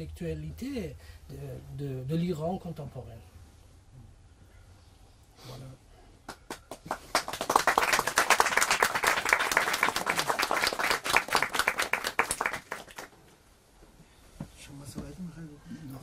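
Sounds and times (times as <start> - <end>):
small audience clapping: 6.2 - 13.2.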